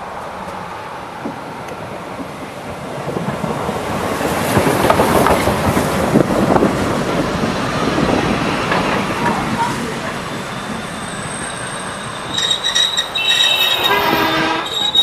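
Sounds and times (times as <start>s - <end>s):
train wheels clattering on rails: 1.2s - 10.9s.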